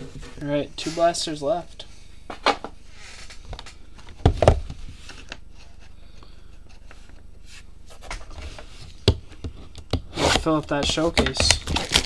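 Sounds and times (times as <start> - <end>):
card packs clicking and rustling: 10.4 - 12.0.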